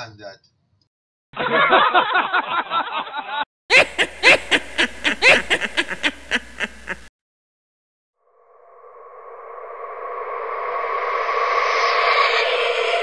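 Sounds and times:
people laughing: 1.4 - 7.1
steady synthesizer tone: 8.2 - 13.0.

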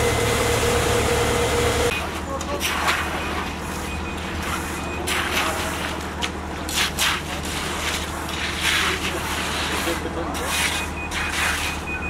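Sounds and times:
truck engine running: 0.0 - 2.4
rakes scraping wet concrete: 3.7 - 11.9.

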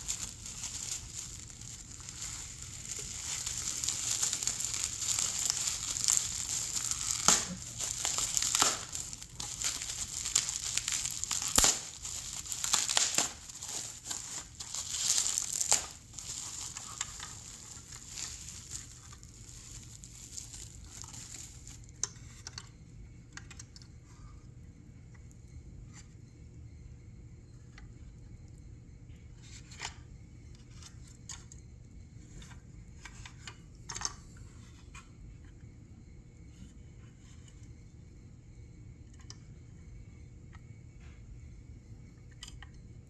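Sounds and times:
bubble wrap cracks: 0.0 - 22.1
bubble wrap crinkling: 0.0 - 22.1.

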